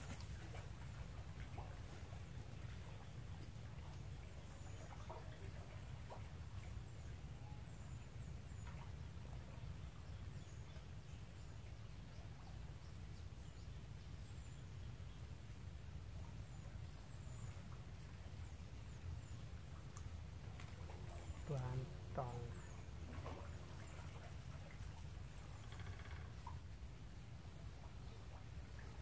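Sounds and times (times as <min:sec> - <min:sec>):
constant low rumble: 0:00.0 - 0:29.0
faint bird chirps: 0:25.4 - 0:26.6.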